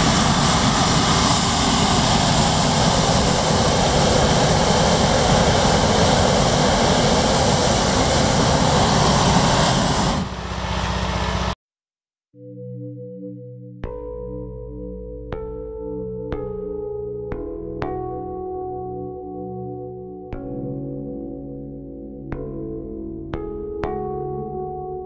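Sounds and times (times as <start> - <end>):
engine hum: 0.0 - 11.6
propane burner firing: 0.0 - 11.6.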